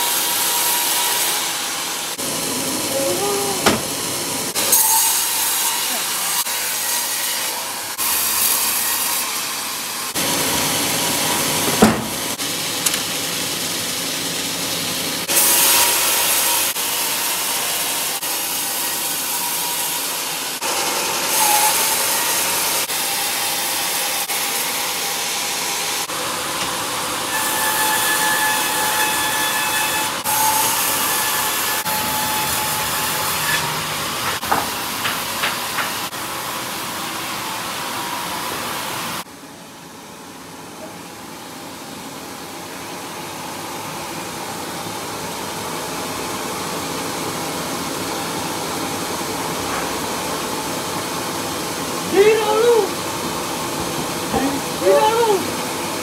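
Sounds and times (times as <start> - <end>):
band saw cutting log: 0.0 - 13.0, 15.2 - 36.2.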